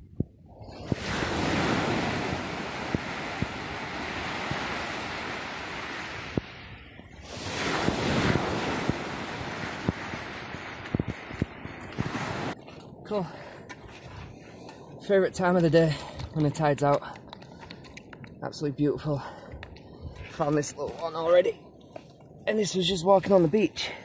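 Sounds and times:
wind buffeting microphone: 0.0 - 23.9
sea waves washing on shore: 0.6 - 18.2.

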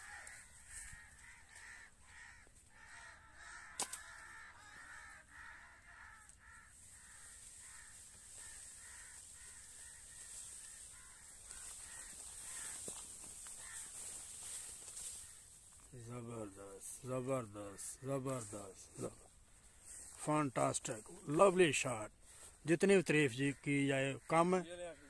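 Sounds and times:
crows cawing: 0.0 - 25.0
sharp crack: 3.7 - 4.2.

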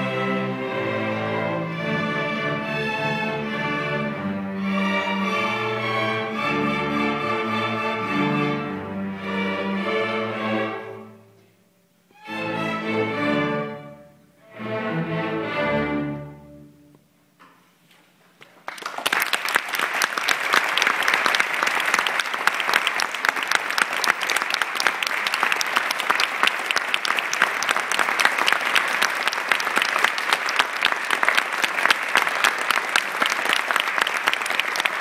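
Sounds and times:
audience applauding: 18.4 - 35.0.

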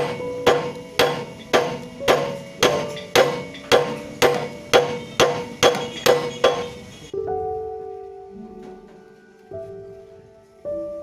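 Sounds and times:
hammer striking steel gear: 0.0 - 7.1.

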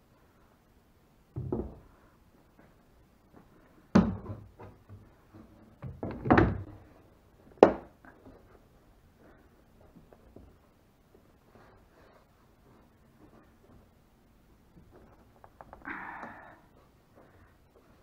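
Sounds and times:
plywood panel thunks: 1.4 - 2.0, 3.9 - 5.0, 5.8 - 6.8.

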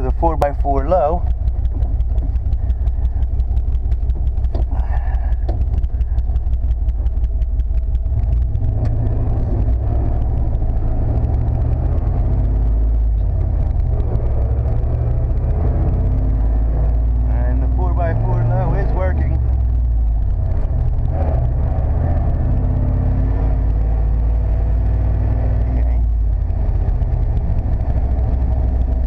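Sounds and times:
truck engine rumbling: 0.0 - 29.0.

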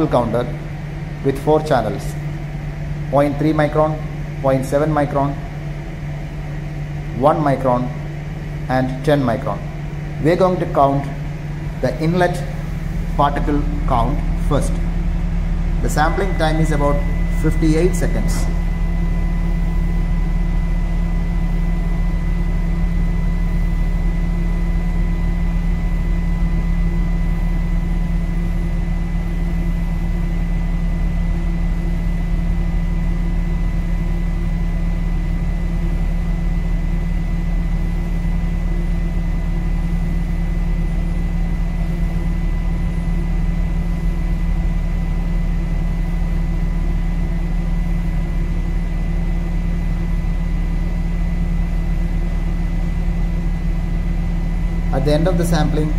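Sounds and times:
air filter fan humming: 0.0 - 55.9
thin high whine: 7.1 - 36.2.

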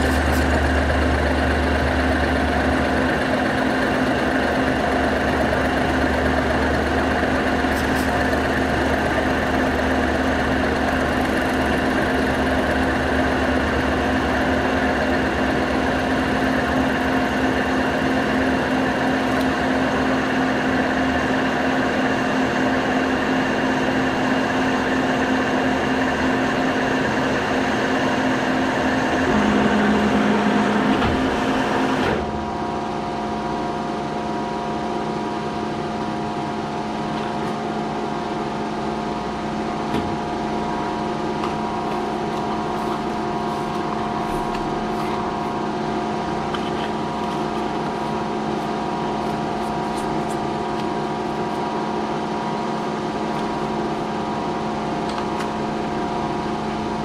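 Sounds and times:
spindle humming: 29.1 - 32.2
milling machine cutting metal: 29.1 - 32.3.

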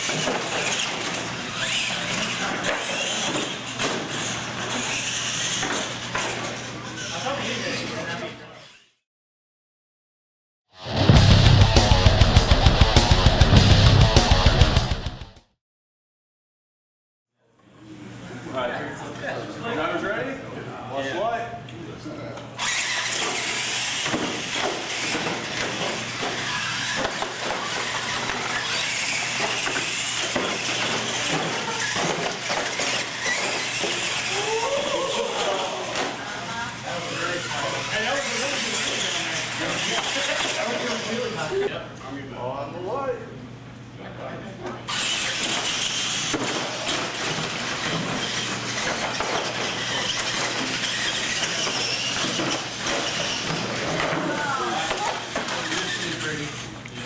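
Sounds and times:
toy truck electric motors whining: 0.0 - 9.0, 22.6 - 41.6, 44.9 - 57.0
tyres on concrete: 22.8 - 36.2, 44.9 - 56.5.

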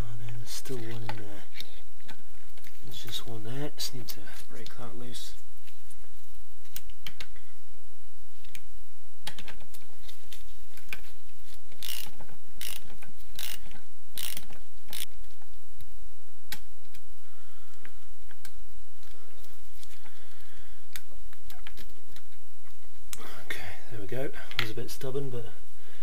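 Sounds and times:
socket ratchet clicking: 11.8 - 15.1.

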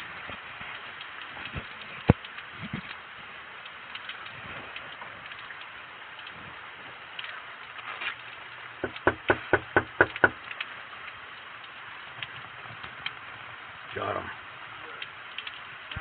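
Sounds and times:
falling rain: 0.0 - 16.0
fist knocking on door: 8.8 - 10.4.

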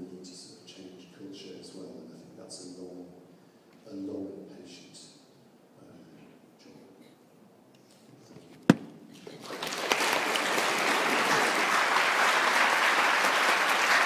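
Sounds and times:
sharp knock: 8.7 - 9.0
audience applauding: 9.3 - 14.0.

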